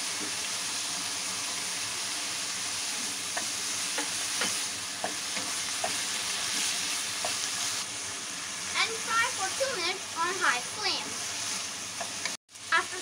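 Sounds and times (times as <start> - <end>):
vegetables sizzling in a wok: 0.0 - 13.0
spatula scraping and knocking pan: 3.0 - 7.6.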